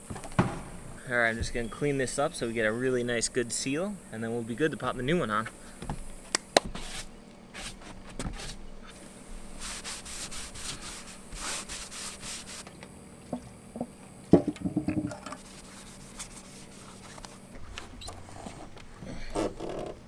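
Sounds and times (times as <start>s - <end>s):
sharp knocks: 0.0s - 1.7s, 13.8s - 15.2s
brushing and rubbing on roof: 5.4s - 12.7s, 15.4s - 19.9s.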